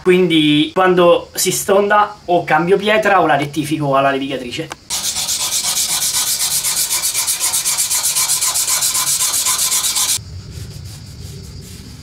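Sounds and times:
knife scraping on abrasive stone: 4.9 - 10.2.

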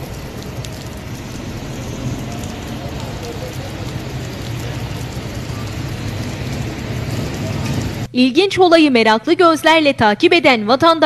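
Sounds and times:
car engines humming: 0.0 - 8.1
rain on a wet street: 0.0 - 8.1.

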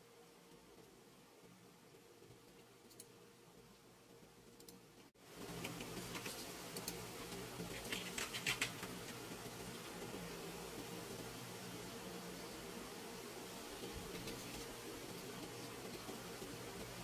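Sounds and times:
background hiss: 0.0 - 17.0
low steady hum: 0.0 - 17.0
small clicks and taps: 5.5 - 10.2.

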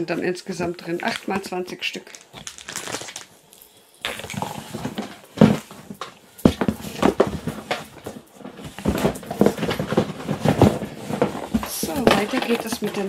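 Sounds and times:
cardboard boxes rustling and knocking: 4.1 - 13.0.

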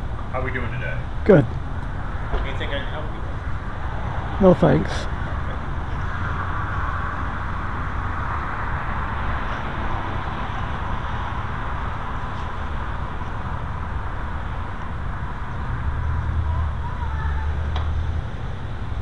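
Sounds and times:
road traffic noise: 0.0 - 19.0.

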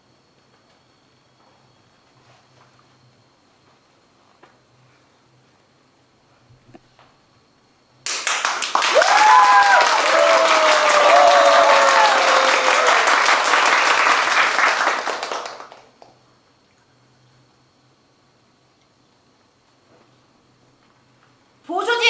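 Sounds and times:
crowd applauding and cheering: 8.1 - 16.0.

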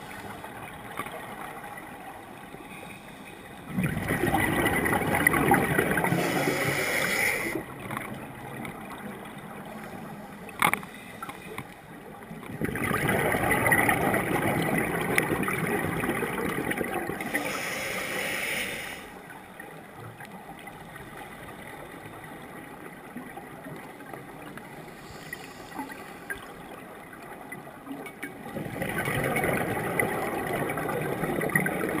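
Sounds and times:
regulator exhaust bubbles underwater: 3.7 - 6.6, 12.4 - 17.3, 27.6 - 32.0
diver breathing in: 6.1 - 7.6, 17.2 - 19.2, 24.8 - 26.4.

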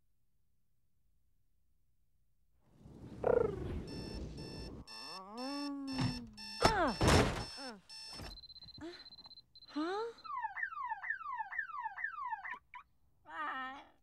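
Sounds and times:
warbling car alarm siren: 3.3 - 12.6
long electronic beep: 3.9 - 10.9
loud thump: 6.0 - 7.5.

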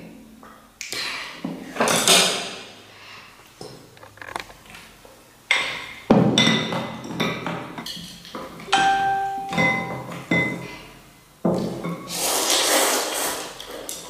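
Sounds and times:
porcelain bowls and spoon clinking: 6.4 - 10.7.

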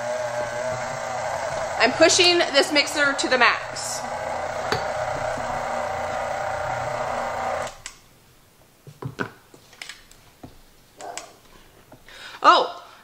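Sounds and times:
stand mixer motor straining: 0.0 - 7.9.

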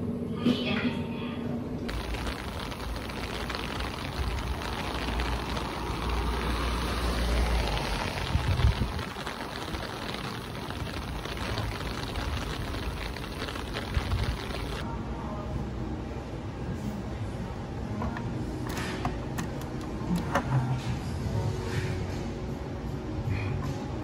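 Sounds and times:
street noise hiss: 1.9 - 14.9.

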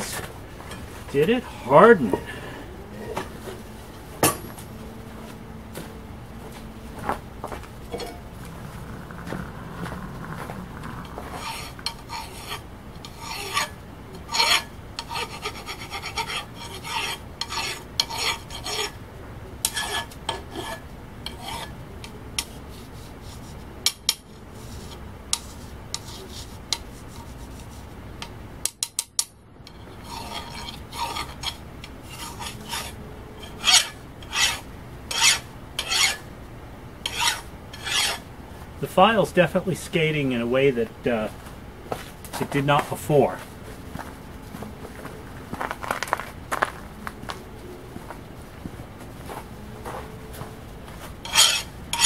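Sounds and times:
file rasping on steel: 11.0 - 19.0, 19.6 - 21.7, 22.4 - 27.8, 29.7 - 36.2, 37.0 - 38.2, 51.2 - 52.0.

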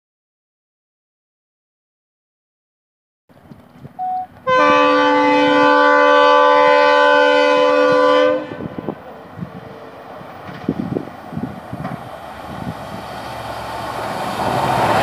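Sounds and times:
locomotive horn blast: 4.0 - 9.0.

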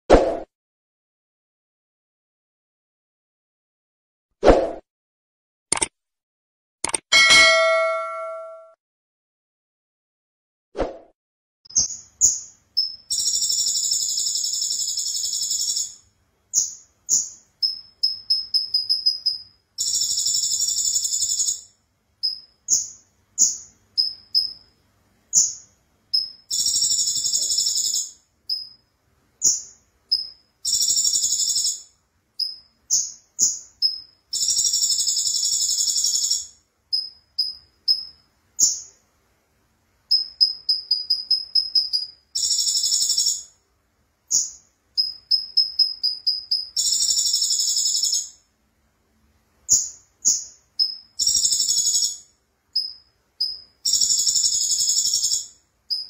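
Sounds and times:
songbird buzzy rattling trills: 11.8 - 38.9, 40.1 - 43.5, 44.3 - 48.4, 49.7 - 56.0.

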